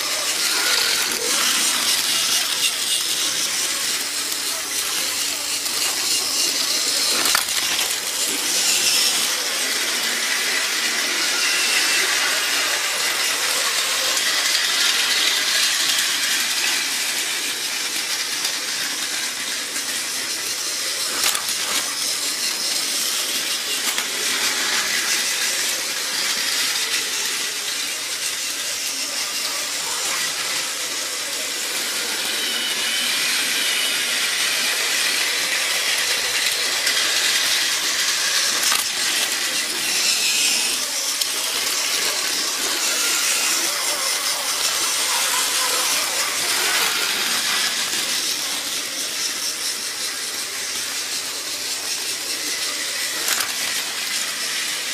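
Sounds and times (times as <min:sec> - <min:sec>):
toy train motors whirring: 0:00.0 - 0:54.9.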